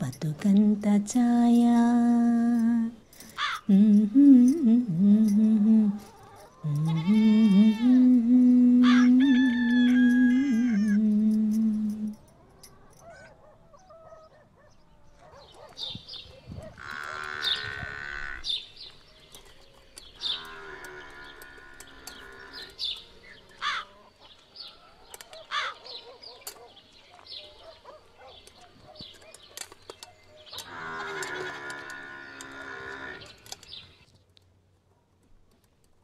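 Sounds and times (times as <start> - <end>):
birds chirping: 0.0 - 34.3
cattle mooing: 20.2 - 23.8, 30.6 - 33.4.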